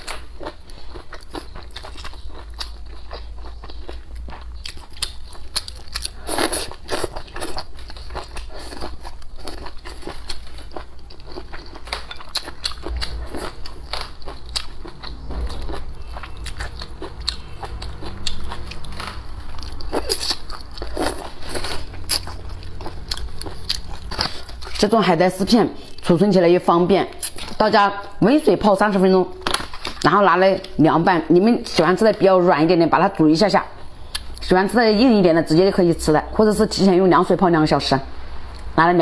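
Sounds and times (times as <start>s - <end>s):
chewing crunchy salad: 0.0s - 26.3s, 27.1s - 28.2s, 29.3s - 30.8s, 34.0s - 34.5s.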